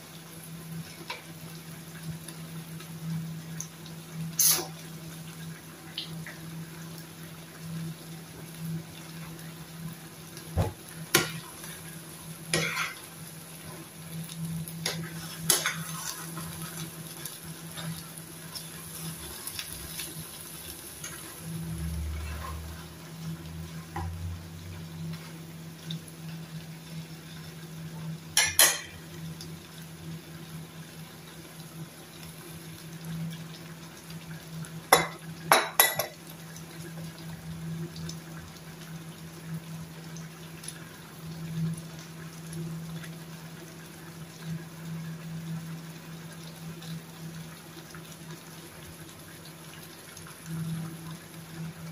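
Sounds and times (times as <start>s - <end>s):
metal spoon clinking on pan: 28.4s - 29.0s, 34.9s - 36.2s.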